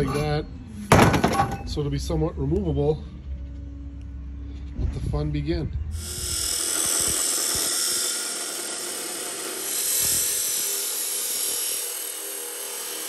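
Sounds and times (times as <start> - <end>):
chop saw grinding metal: 0.0 - 0.4, 6.0 - 13.0.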